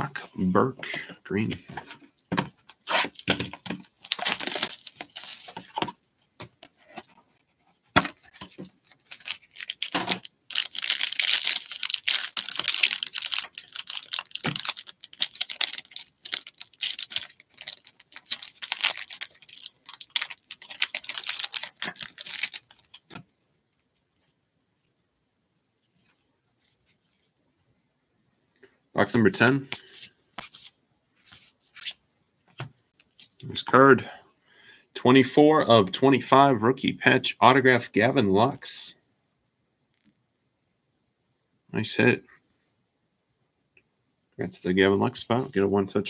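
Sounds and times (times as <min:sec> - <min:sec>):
foil pack crinkling and tearing: 0:02.8 - 0:05.9, 0:08.0 - 0:23.2.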